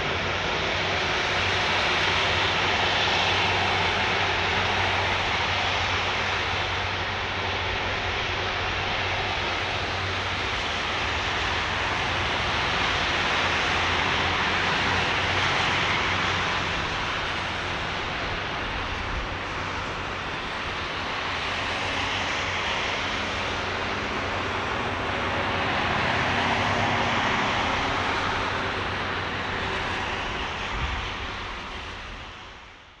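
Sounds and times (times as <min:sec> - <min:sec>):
jet engines running at low power: 0:00.0 - 0:33.0.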